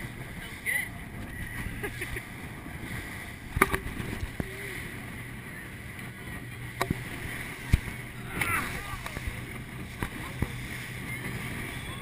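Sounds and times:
boat engine drone: 0.0 - 12.0
rushing water: 0.0 - 12.0
rushing wind: 0.0 - 12.0
hull slamming into waves: 6.7 - 12.0.

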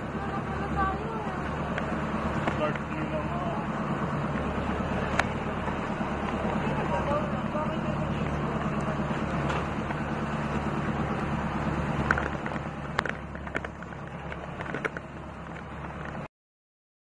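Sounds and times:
boat engine running: 0.0 - 16.3
wind and water rushing: 1.5 - 15.0.

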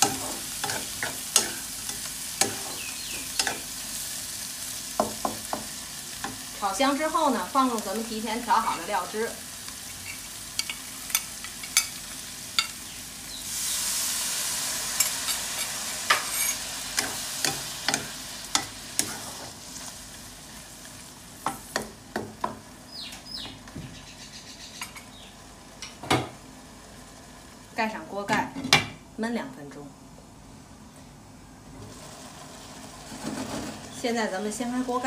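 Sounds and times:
sauce sizzling in hot oil: 0.0 - 22.9, 31.8 - 35.0.

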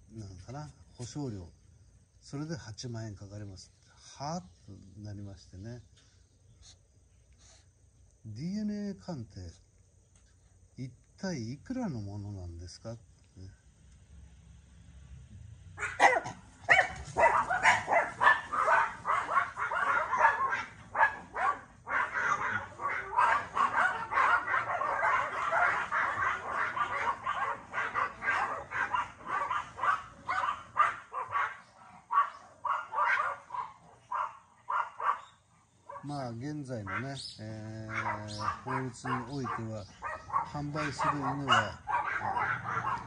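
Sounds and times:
small dogs yapping: 15.8 - 36.2, 36.8 - 37.2, 37.8 - 43.0.

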